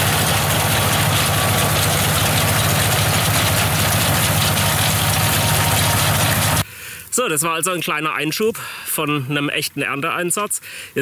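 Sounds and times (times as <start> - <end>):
machinery noise: 0.0 - 6.6
tractor engine running under load: 0.0 - 6.6.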